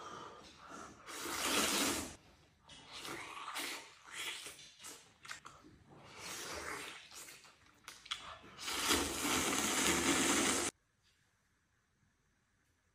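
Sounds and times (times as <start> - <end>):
person slurping noodles: 0.8 - 2.2, 8.5 - 10.7.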